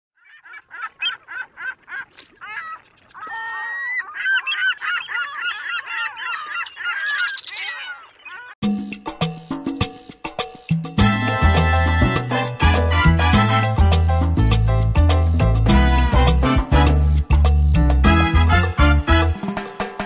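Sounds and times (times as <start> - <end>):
geese honking: 0.2 - 8.6.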